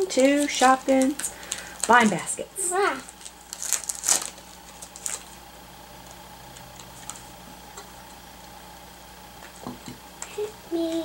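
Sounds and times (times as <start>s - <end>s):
plastic basket clicking and crinkling: 0.0s - 2.2s.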